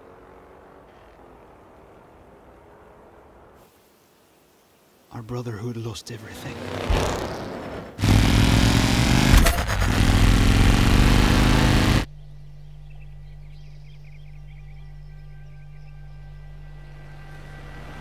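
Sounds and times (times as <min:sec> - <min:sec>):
low steady hum: 0:12.0 - 0:18.0.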